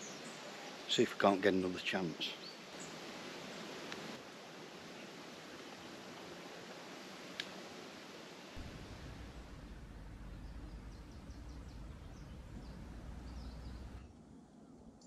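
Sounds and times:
steady low rumble: 8.6 - 14.1
faint bird chirps: 8.6 - 14.2.

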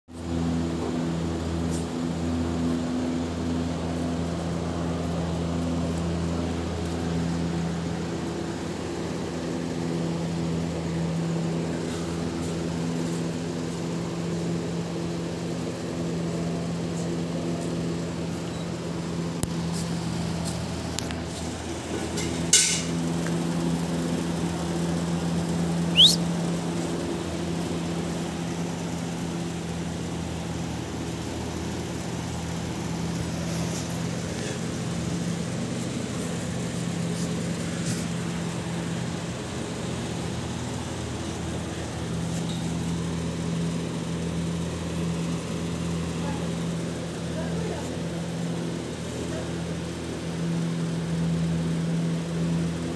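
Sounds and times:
short rising squeak: 25.9 - 26.2.

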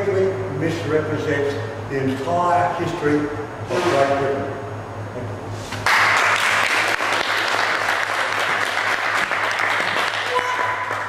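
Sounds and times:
audience applause: 5.8 - 11.0.

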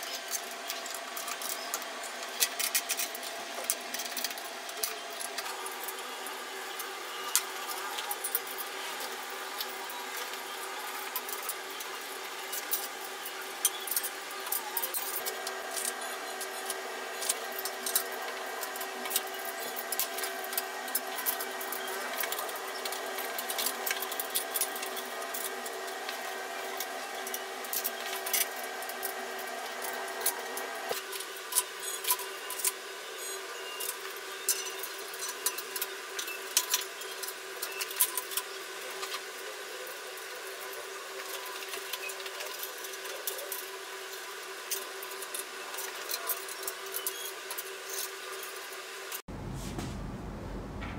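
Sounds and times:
steady hum: 49.2 - 50.9.

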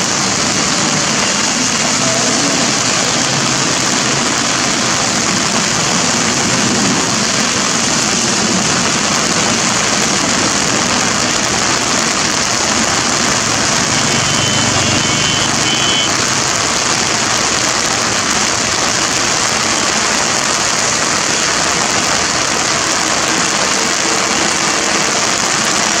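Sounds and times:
heavy rain: 0.0 - 26.0.

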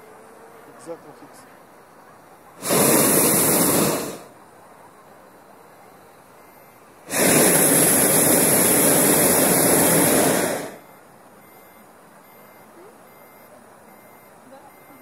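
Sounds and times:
propane burner blast: 2.6 - 4.4, 7.0 - 10.8.

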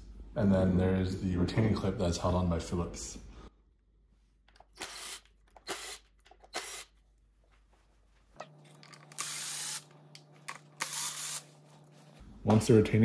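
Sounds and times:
cordless drill running: 4.7 - 7.0, 9.0 - 9.9, 10.8 - 11.6.

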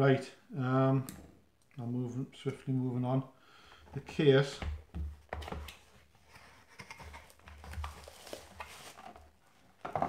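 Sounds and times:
boxes being handled: 3.9 - 10.0.

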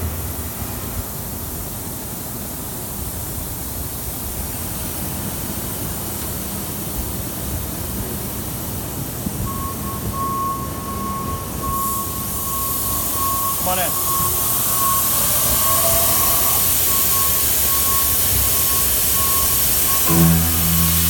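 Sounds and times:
machine high-pitched whine: 11.9 - 21.0
machine shop machinery running: 12.4 - 21.0.

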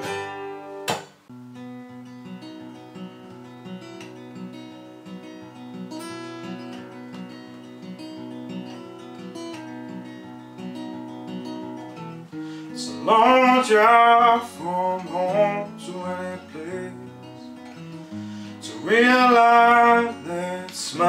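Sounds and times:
fingerpicked acoustic guitar: 0.0 - 21.0
man singing: 12.7 - 17.7, 18.5 - 21.0.

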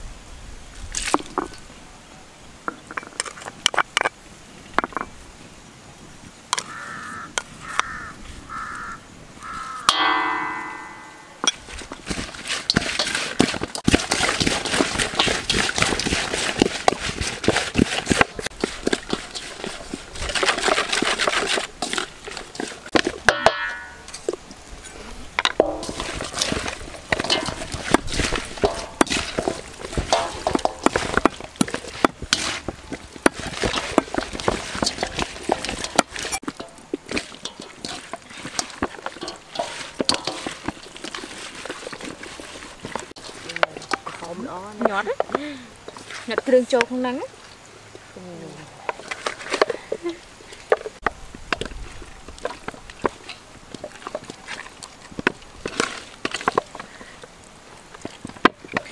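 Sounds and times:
hands squishing wet food: 11.6 - 23.3, 25.6 - 46.5
clicks against metal bowl: 33.3 - 41.2.

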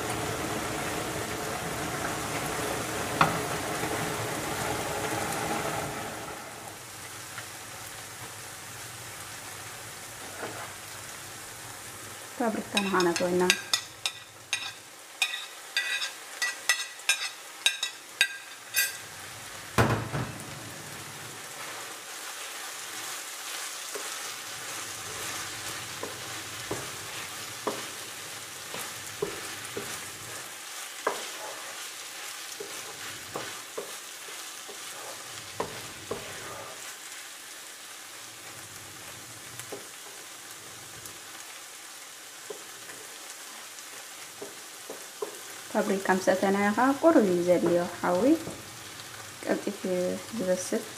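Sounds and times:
vegetables sizzling in frying pan: 0.0 - 50.9
spatula stirring and knocking pan: 3.1 - 4.0, 12.7 - 19.0, 21.6 - 36.9, 42.4 - 43.2, 44.2 - 45.6
metal spoon clinking on pan: 12.8 - 19.1
heavy thump: 19.8 - 20.5.

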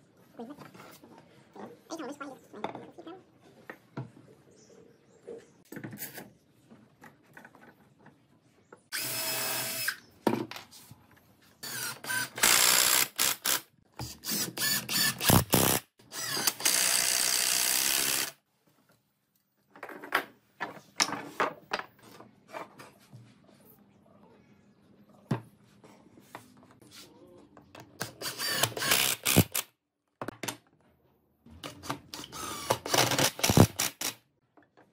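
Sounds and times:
cordless drill drilling into wood: 8.9 - 10.0, 14.3 - 18.4, 28.2 - 29.6.

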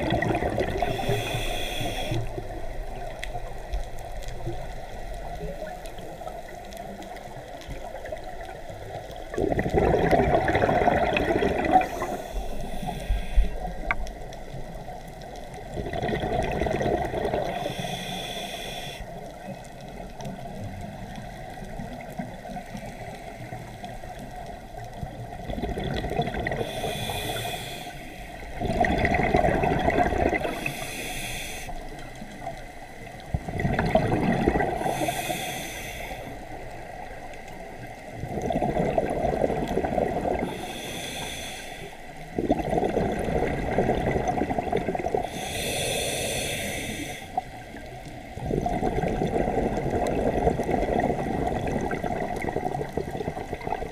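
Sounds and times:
exhaled bubbles rushing: 0.0 - 1.2, 9.3 - 12.2, 15.6 - 17.6, 25.3 - 26.7, 28.6 - 30.7, 33.3 - 34.9, 38.2 - 40.6, 42.4 - 45.3, 48.3 - 53.9
regulator hissing inhale: 0.8 - 3.4, 11.7 - 14.0, 17.3 - 19.2, 26.6 - 28.6, 30.4 - 32.2, 34.7 - 36.9, 40.4 - 42.4, 45.2 - 47.8.

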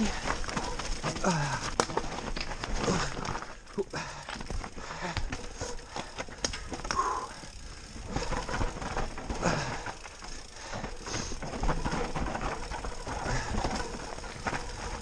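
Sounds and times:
bike rattling over bumps: 0.0 - 15.0
bike tyres crunching and skidding: 0.0 - 15.0
freewheel clicking: 4.3 - 15.0.

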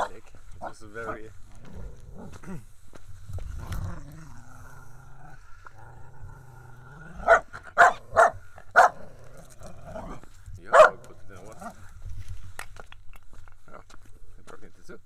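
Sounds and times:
dog growling low: 1.1 - 2.8, 3.4 - 10.3, 11.4 - 11.9
dog barking sharply: 7.3 - 9.0, 10.7 - 11.0.

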